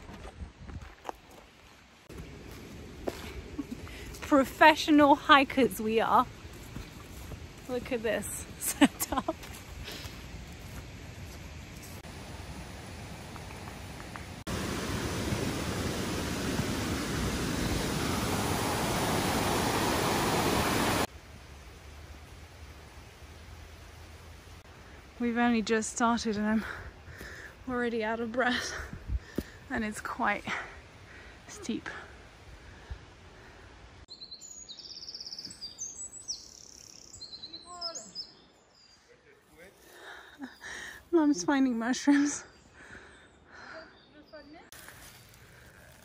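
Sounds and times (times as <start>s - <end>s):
stream rushing over boulders: 12.0s - 21.1s
birds singing: 34.1s - 39.5s, 40.4s - 44.7s.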